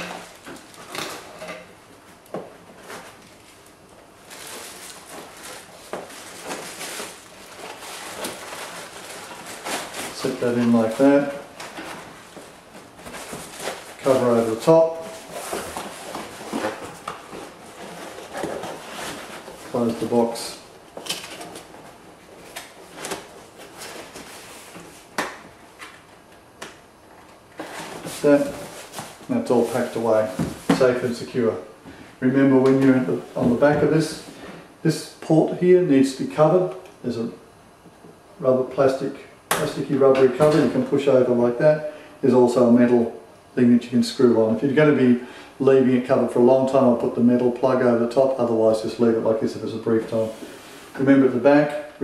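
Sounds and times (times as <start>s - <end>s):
rustling of cardboard and foam: 2.4s - 26.3s, 27.5s - 32.0s.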